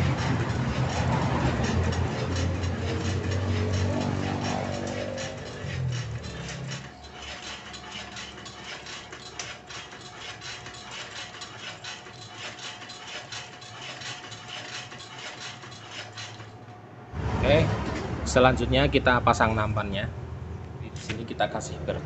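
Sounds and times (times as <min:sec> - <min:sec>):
machine clicking and rattling: 0:00.0 - 0:16.8.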